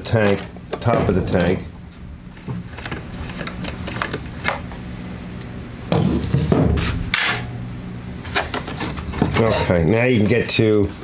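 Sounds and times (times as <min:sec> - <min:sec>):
low hum: 0:00.6 - 0:09.9.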